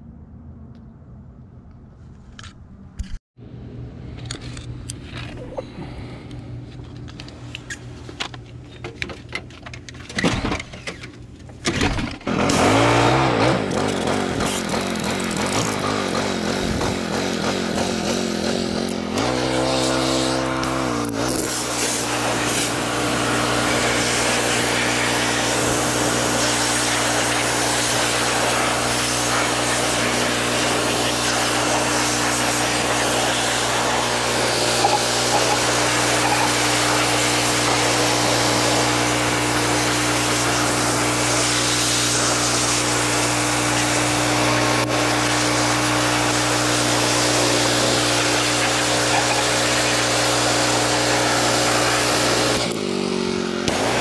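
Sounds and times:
pressure washer motor humming: 12.3 - 54.0
water jet spraying hiss: 19.2 - 52.7.

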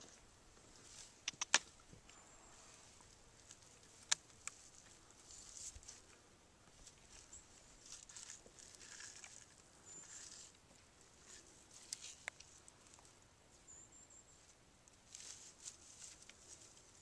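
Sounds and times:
animal rustling over dry branches: 0.0 - 13.6, 14.3 - 17.0
sharp click: 1.2 - 1.7.

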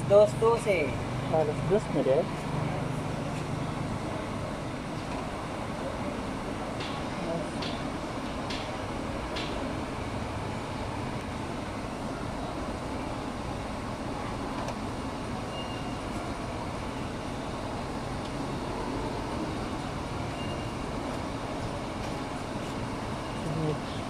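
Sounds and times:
faint short high beeps: 15.5 - 16.0, 20.3 - 20.8.

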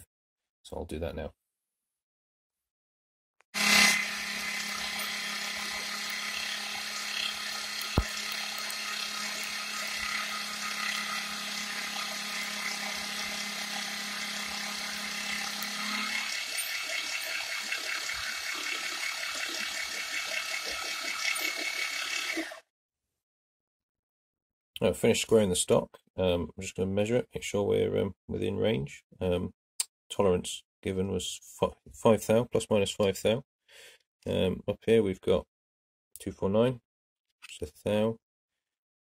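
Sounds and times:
end mill cutting aluminium: 3.6 - 22.6.

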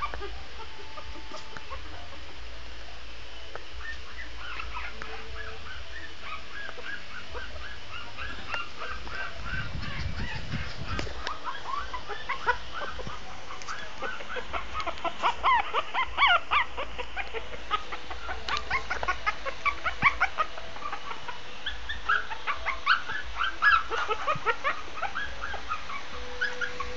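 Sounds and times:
puppy whimpering and yipping: 0.0 - 1.8, 3.8 - 26.9.

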